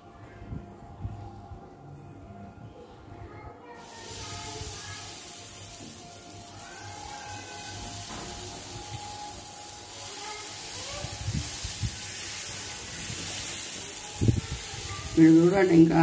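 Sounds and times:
faint background music: 0.0s - 16.0s
batter sizzling on hot griddle: 3.8s - 16.0s.

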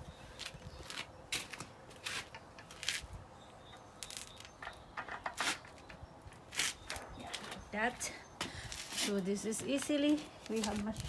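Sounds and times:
footsteps on paving stones: 0.3s - 3.2s, 6.4s - 11.0s.

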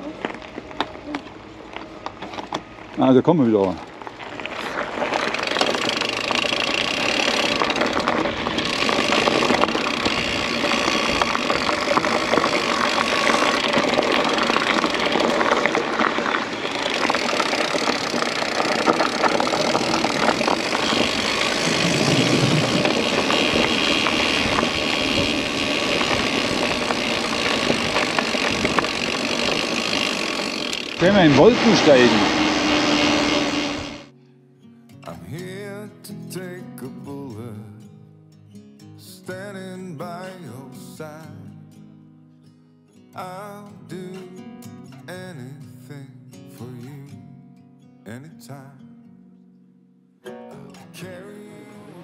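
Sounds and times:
bike tyres rolling on ground: 0.0s - 34.1s
wind on microphone: 19.5s - 29.7s.

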